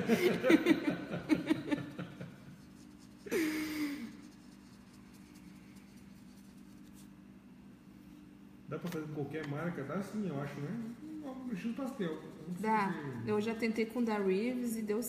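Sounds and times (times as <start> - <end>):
woman laughing softly: 0.0 - 2.5, 3.2 - 4.3
faint steady hum: 0.0 - 15.0.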